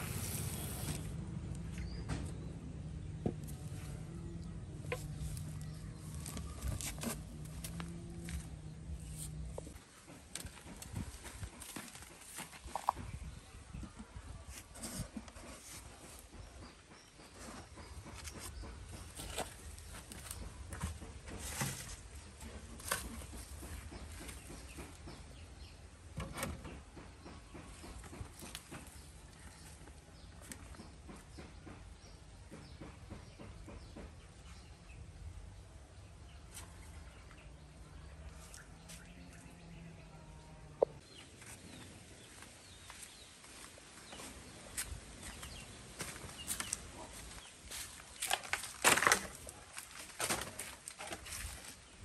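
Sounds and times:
footsteps on dry leaves: 42.3 - 51.9.

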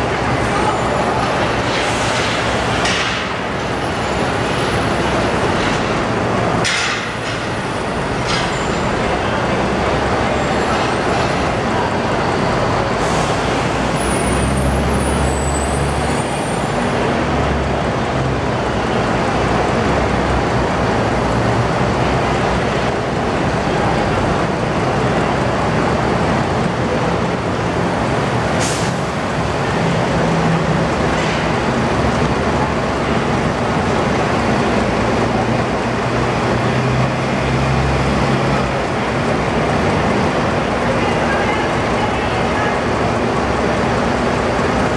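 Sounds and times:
diesel bus engines running: 0.0 - 44.9.

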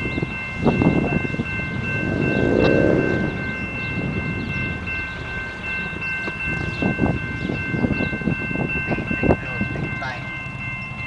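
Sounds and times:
low train rumble: 0.0 - 11.0
railroad crossing bell ringing: 0.0 - 11.0
low thumps: 0.9 - 5.8.

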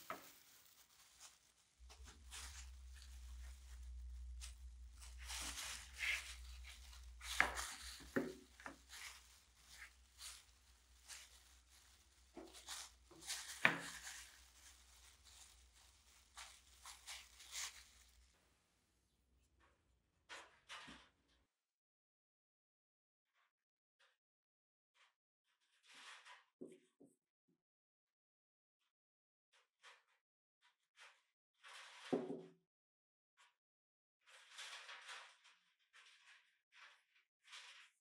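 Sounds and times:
sponge rubbing on wood: 0.0 - 18.1
plastic gloves crinkling: 0.0 - 18.5.

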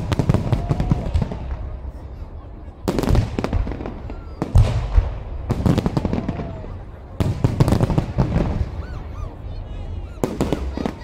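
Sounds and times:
fireworks crackling: 0.0 - 2.0, 2.9 - 8.8
fireworks bangs: 0.0 - 11.0.

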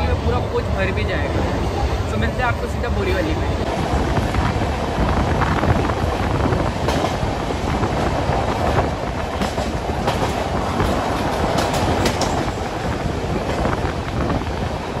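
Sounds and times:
train wheels rumbling on rails: 0.0 - 15.0
wheels clacking over rail joints: 6.7 - 15.0.

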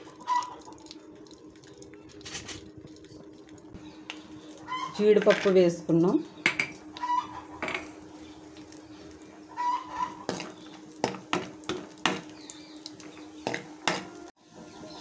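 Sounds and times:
nuts frying in oil: 0.0 - 5.6, 7.8 - 14.9
spoon scraping a pan: 9.6 - 12.3.

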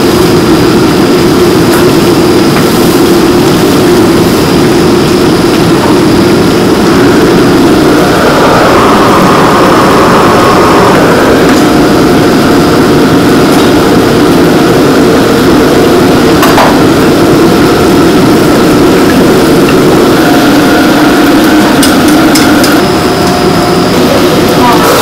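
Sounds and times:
gas wok burner roaring: 0.0 - 25.0.

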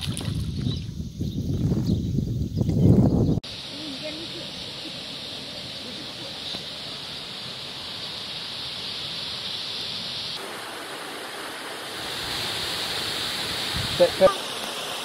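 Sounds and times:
waterfall rushing: 3.4 - 15.0.

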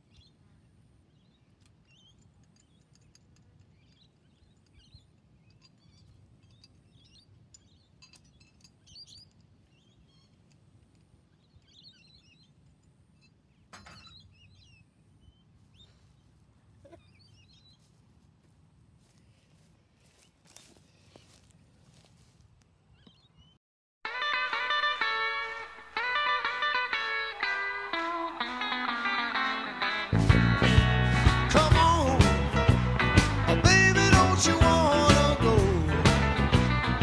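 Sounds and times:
faint birds chirping: 0.0 - 23.6.

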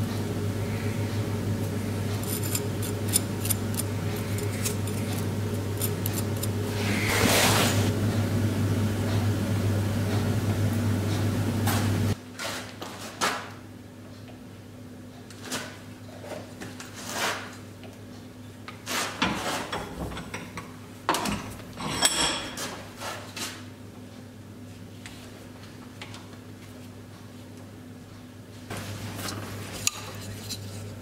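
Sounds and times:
machine hum: 0.0 - 12.2.

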